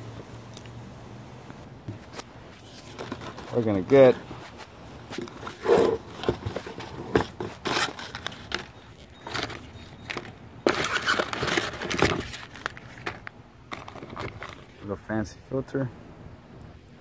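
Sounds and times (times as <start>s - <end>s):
cardboard and packing paper rustling: 1.9s - 14.9s.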